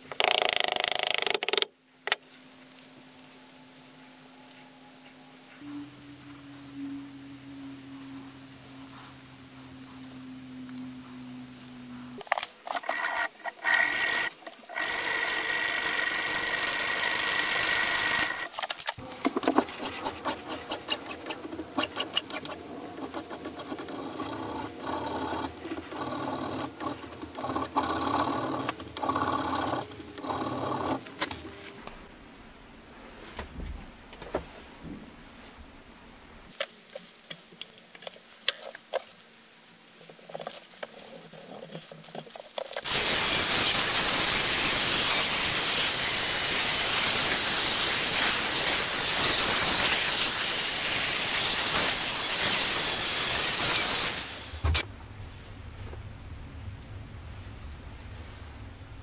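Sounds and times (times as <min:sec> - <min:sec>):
angle grinder buffing: 0:12.8 - 0:18.6.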